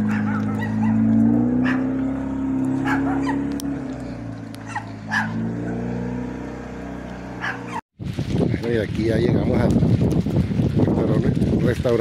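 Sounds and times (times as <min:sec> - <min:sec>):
dog barking: 0:00.0 - 0:01.9, 0:02.8 - 0:03.5, 0:04.6 - 0:05.8, 0:07.4 - 0:07.8.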